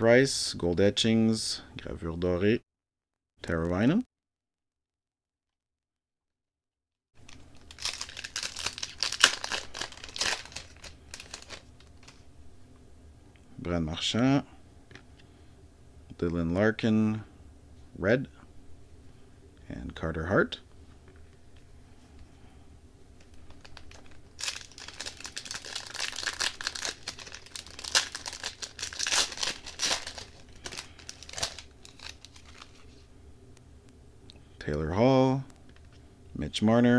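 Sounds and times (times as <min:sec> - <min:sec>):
foil wrapper crinkling and tearing: 0:07.2 - 0:12.3, 0:23.2 - 0:33.1.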